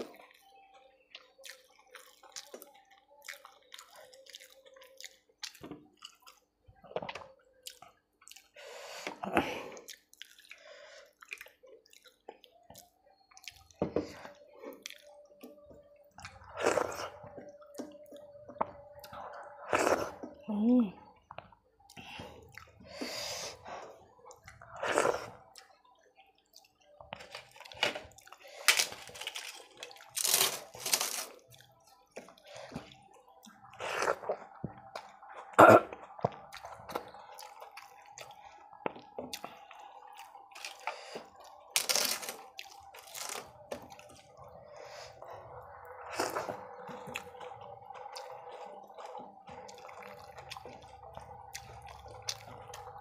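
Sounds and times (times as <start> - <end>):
crisp crunching and chewing: 26.5 - 44.4.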